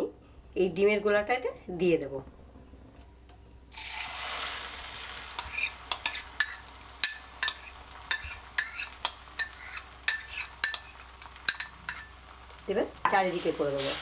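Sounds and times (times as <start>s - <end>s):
egg sizzling in hot oil: 3.7s - 14.0s.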